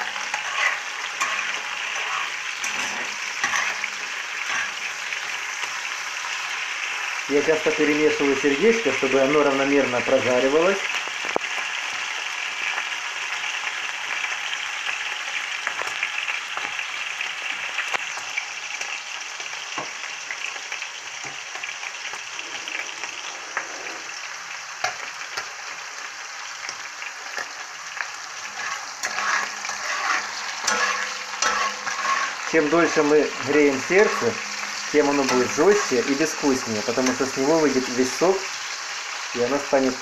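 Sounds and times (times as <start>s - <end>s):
spatula scraping a pan: 0.0s - 6.5s, 27.3s - 38.0s
meat sizzling in oil: 0.0s - 40.0s.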